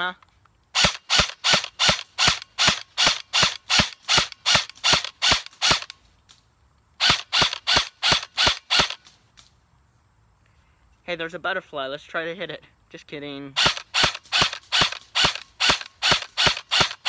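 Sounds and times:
airsoft gun single shots: 0:00.8 - 0:06.0, 0:07.0 - 0:09.1, 0:13.6 - 0:17.0.

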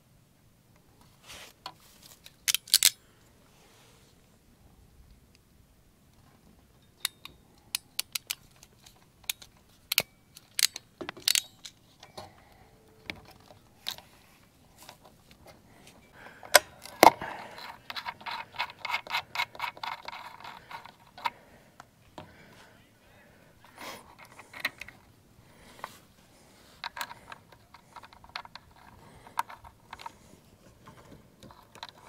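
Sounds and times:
metal hardware clicking and rattling: 0:02.1 - 0:03.0, 0:06.8 - 0:12.4, 0:16.4 - 0:21.3.

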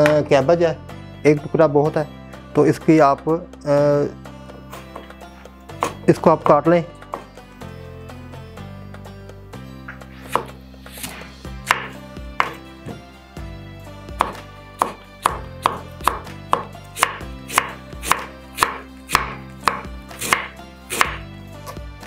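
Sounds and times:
soft background music: 0:00.0 - 0:22.0
knife chopping cabbage on wood: 0:05.8 - 0:06.1, 0:10.2 - 0:13.0, 0:14.2 - 0:21.8.

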